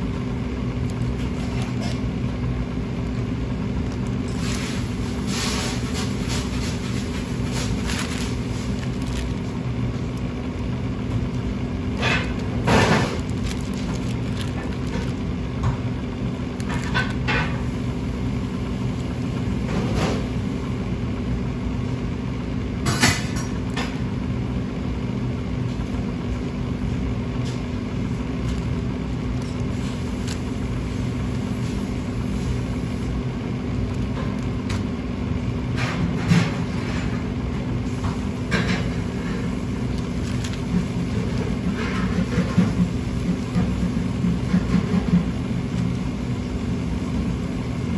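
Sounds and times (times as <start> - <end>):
kitchen machinery hum: 0.0 - 47.9
plastic film crinkling: 0.7 - 2.1, 3.2 - 19.7, 27.9 - 35.1, 37.9 - 47.3.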